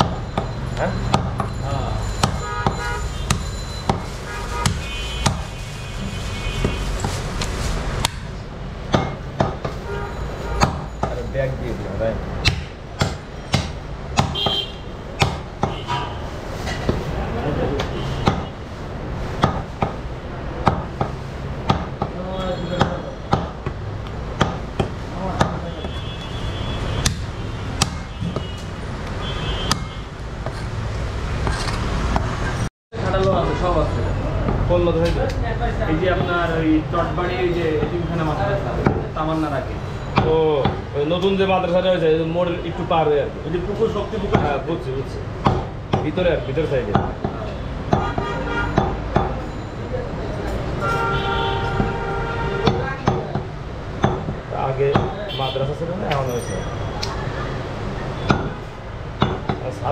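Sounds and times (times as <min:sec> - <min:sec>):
cleaver chopping on wooden block: 0:02.2 - 0:05.5, 0:12.4 - 0:14.5, 0:27.0 - 0:28.5, 0:29.6 - 0:30.0
knife chopping on wooden block: 0:02.2 - 0:05.5.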